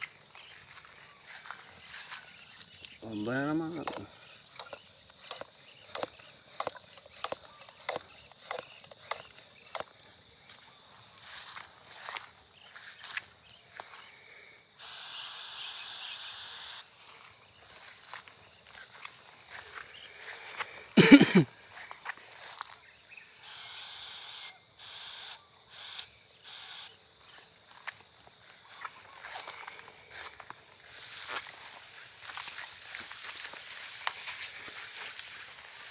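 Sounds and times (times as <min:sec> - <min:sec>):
high insect buzz: 0:00.0 - 0:35.9
hand pump strokes of sprayer: 0:01.9 - 0:10.0.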